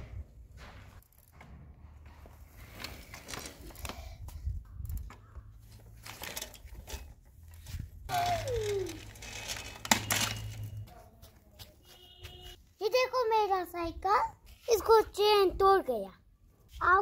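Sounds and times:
bicycle rolling over grass: 0:02.3 - 0:04.1, 0:05.7 - 0:10.8.

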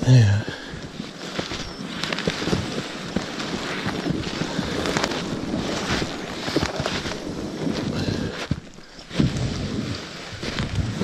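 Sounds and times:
footsteps crunching through snow: 0:00.0 - 0:11.0
wind buffeting microphone: 0:01.6 - 0:11.0.

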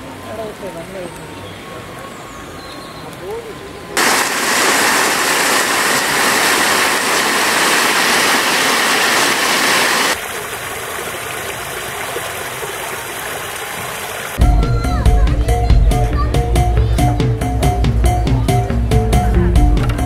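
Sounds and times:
water fountain jets gushing: 0:00.0 - 0:14.4.

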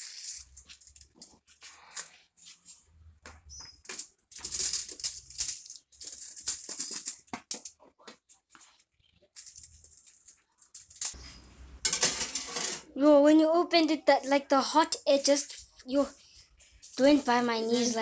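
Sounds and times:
aluminium foil crinkling: 0:03.8 - 0:07.6, 0:09.3 - 0:11.2
potato chips rattling on a tray: 0:03.9 - 0:07.6, 0:09.4 - 0:11.2.

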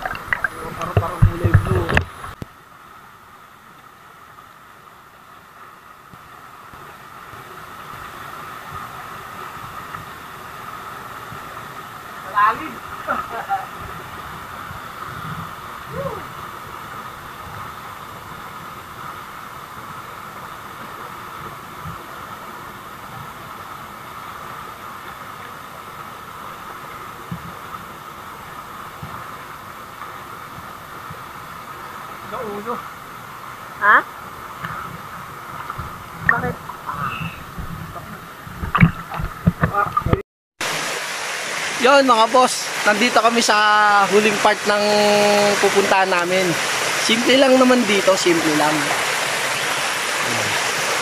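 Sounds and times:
soft low water thumps: 0:00.0 - 0:02.6, 0:34.6 - 0:40.2
small waterfall pouring into pool: 0:00.0 - 0:34.8, 0:38.7 - 0:51.0.

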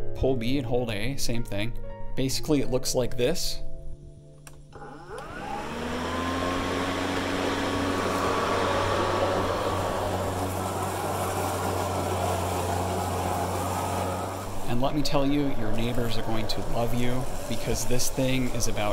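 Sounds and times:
electric lawn mower running: 0:04.7 - 0:18.9.

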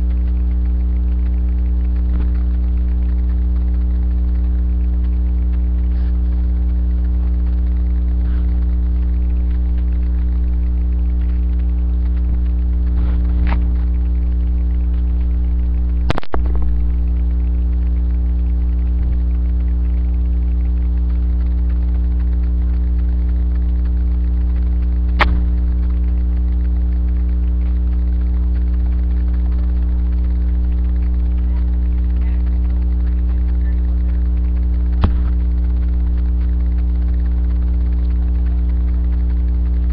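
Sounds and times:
loud electrical hum: 0:00.0 - 0:39.9
sharp clicks: 0:00.0 - 0:39.9.

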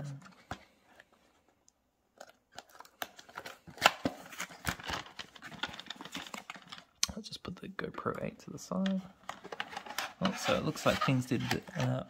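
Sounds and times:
crackles and scrapes of thin card: 0:09.3 - 0:12.0.

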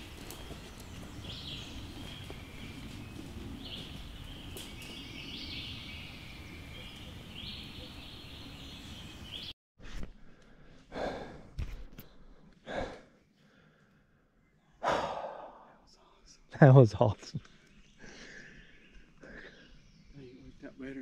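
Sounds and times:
person breathing heavily: 0:09.8 - 0:15.9, 0:18.0 - 0:19.8.

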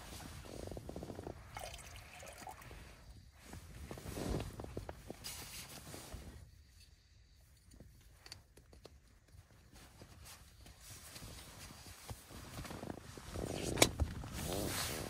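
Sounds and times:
fabric rustling: 0:00.0 - 0:01.8, 0:02.4 - 0:06.6, 0:09.4 - 0:15.0.

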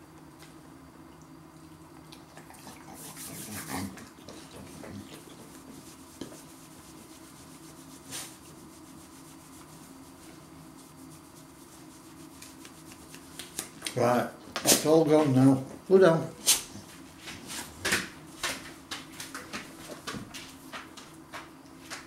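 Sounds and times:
rubbing and scuffing on dog: 0:02.9 - 0:13.8, 0:16.4 - 0:22.0.

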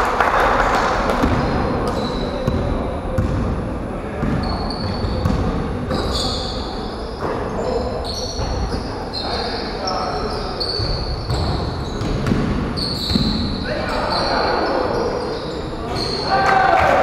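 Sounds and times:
sneaker squeaks: 0:01.2 - 0:03.4, 0:04.2 - 0:16.6
basketball bouncing on wooden floor: 0:02.5 - 0:03.4, 0:04.2 - 0:05.5, 0:10.8 - 0:13.3.

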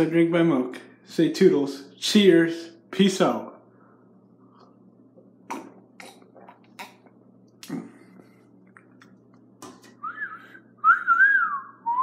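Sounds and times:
low steady hum: 0:00.0 - 0:12.0
person gulping: 0:05.4 - 0:09.1.

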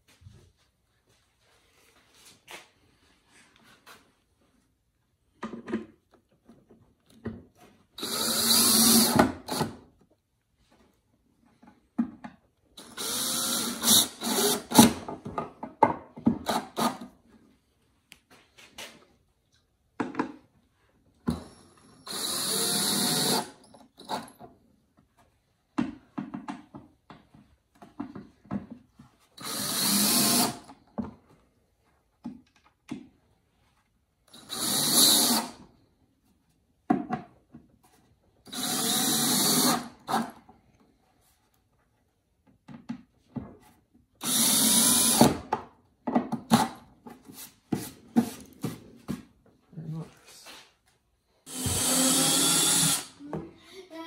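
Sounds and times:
cordless drill driving screws: 0:08.0 - 0:09.8, 0:12.8 - 0:15.0, 0:21.3 - 0:24.3, 0:29.4 - 0:30.7, 0:34.3 - 0:35.6, 0:38.5 - 0:40.4, 0:44.2 - 0:45.5, 0:51.5 - 0:53.2.

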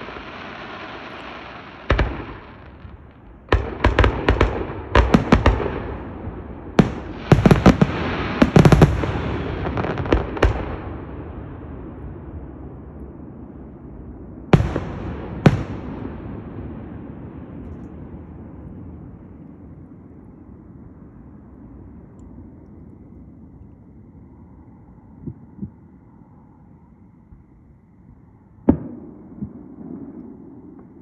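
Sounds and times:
firework bangs: 0:00.0 - 0:11.5, 0:14.5 - 0:17.6
rumble: 0:00.0 - 0:31.0.

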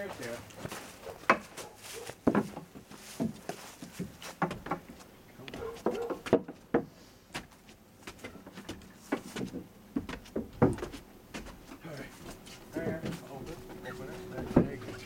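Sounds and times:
footsteps on wooden stairs: 0:00.0 - 0:15.0.

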